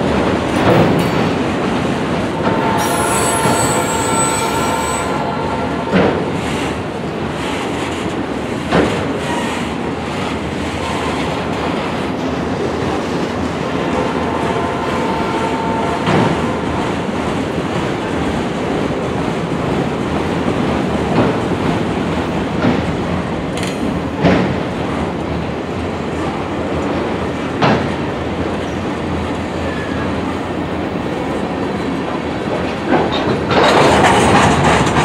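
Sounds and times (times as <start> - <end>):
freight train cars rumbling: 0.0 - 35.0
high wheel squeal: 2.5 - 5.8.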